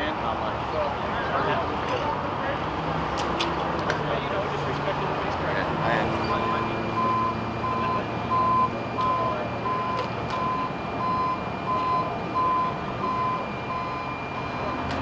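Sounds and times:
rumble of vehicles: 0.0 - 15.0
vehicle backup alarm beeping: 6.2 - 15.0.

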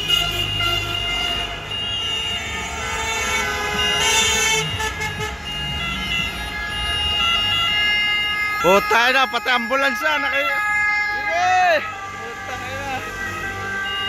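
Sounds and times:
car horns honking: 0.0 - 14.0.

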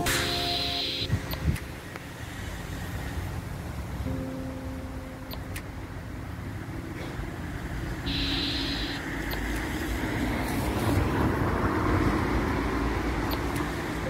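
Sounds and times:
road traffic rumble: 0.0 - 14.0
vehicle passing: 6.0 - 14.0.

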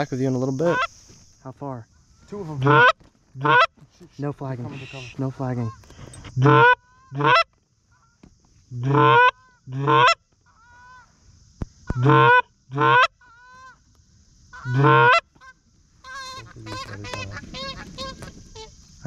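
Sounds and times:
distant geese honking: 2.0 - 3.8, 4.6 - 8.2, 11.9 - 13.8, 14.5 - 18.9
goose call honks: 2.6 - 3.7, 6.4 - 7.4, 8.8 - 10.2, 11.9 - 13.8, 14.6 - 18.7.

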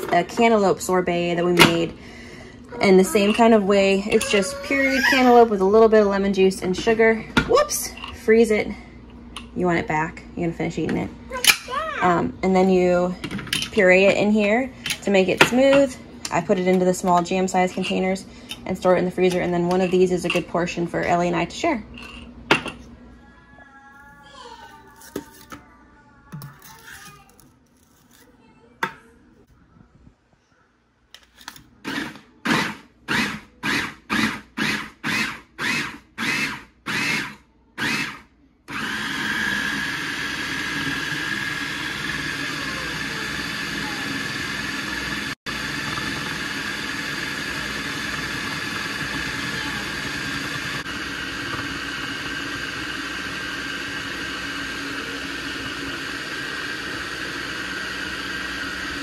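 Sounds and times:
food processor chopping: 31.9 - 59.0.

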